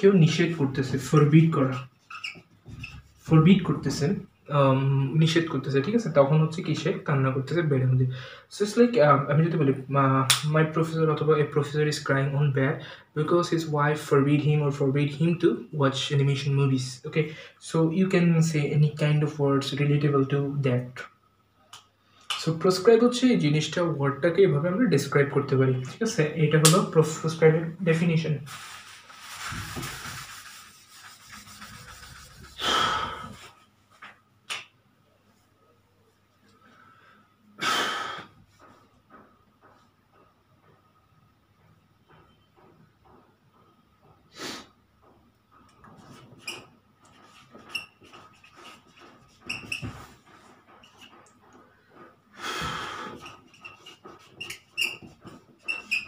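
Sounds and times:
person breathing: 8.1 - 8.5, 32.6 - 33.6, 36.6 - 38.4, 52.3 - 53.2
eraser rubbing on whiteboard: 28.5 - 33.7, 45.8 - 52.2, 52.8 - 56.0.

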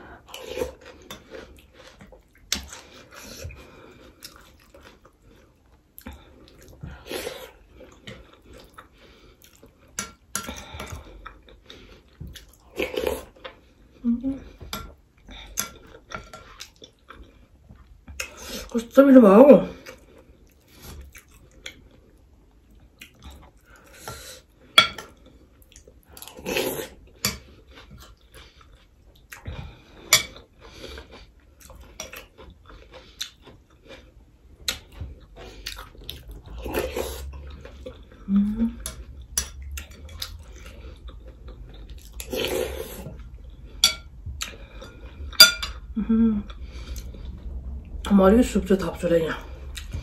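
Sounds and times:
chewing: 0.2 - 18.7, 19.8 - 24.2, 25.0 - 47.4, 49.4 - 50.0
cutlery scraping ceramic plates: 43.8 - 44.1, 45.4 - 45.8.

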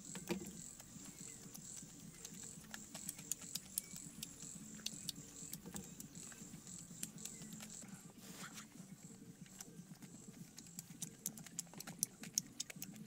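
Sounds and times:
insects chirring: 0.0 - 12.9.

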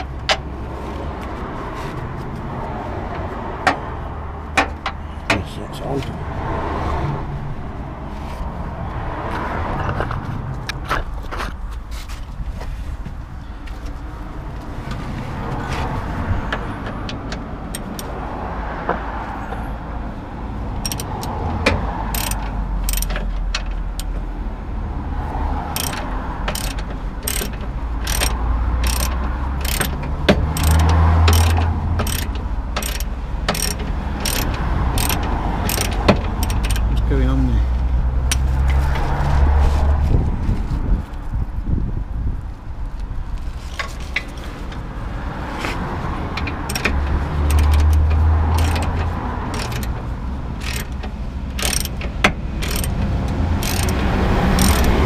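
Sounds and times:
ratchet pawl clicking: 17.7 - 18.1, 20.8 - 21.4, 22.1 - 23.3, 25.7 - 37.0, 38.3 - 38.5, 46.4 - 50.0, 50.6 - 55.0.

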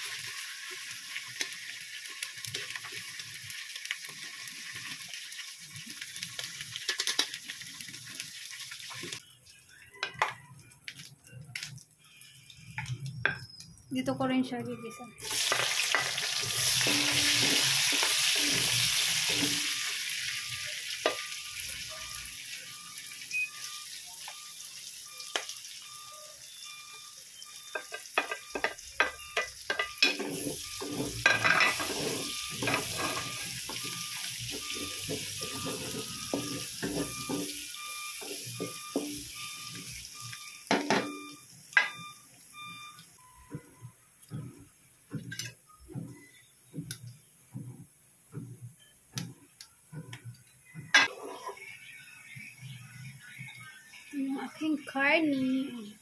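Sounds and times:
onions sizzling in hot oil: 0.0 - 9.2, 15.2 - 43.0
garlic frying: 0.0 - 13.8, 15.2 - 43.3, 48.8 - 56.0
wooden spatula scraping a pan: 30.0 - 37.6, 51.1 - 51.8.

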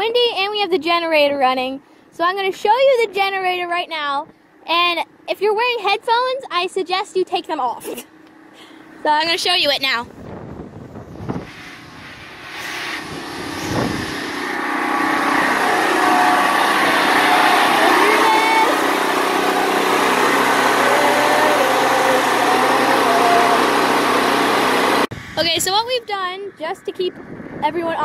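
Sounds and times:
generator engine drone: 8.1 - 28.0.

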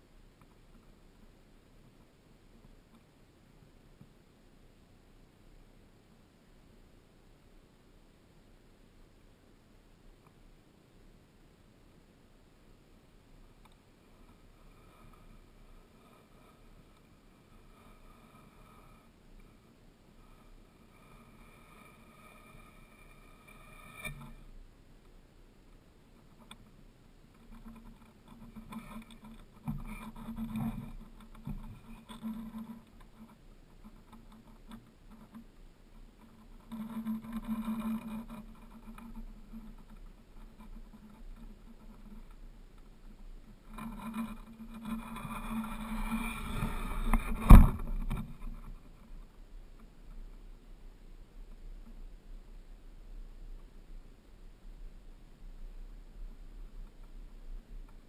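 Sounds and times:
muffled rubbing and rumbling on camera: 12.8 - 58.0.

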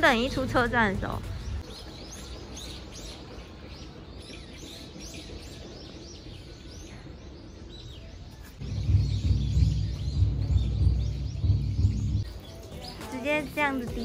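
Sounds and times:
faint outdoor noise: 0.0 - 14.0
small birds chirping: 0.0 - 14.0
loud low pulsing rumble: 8.6 - 12.3.

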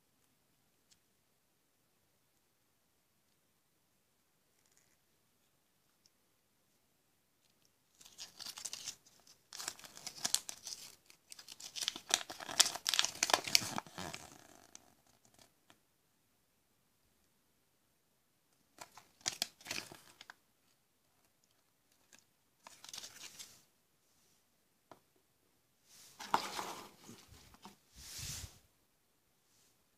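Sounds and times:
plastic wrapper crinkling and tearing: 7.9 - 15.5, 18.8 - 20.4, 21.4 - 23.6.

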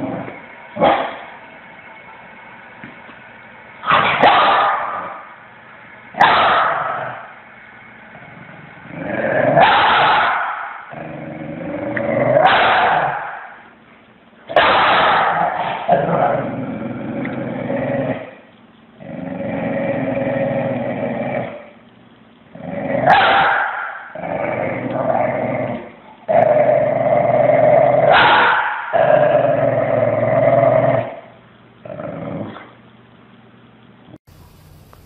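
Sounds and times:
dog growling: 0.0 - 1.3, 8.1 - 10.3, 10.9 - 13.3, 15.0 - 18.4, 19.0 - 21.8, 22.5 - 32.8.

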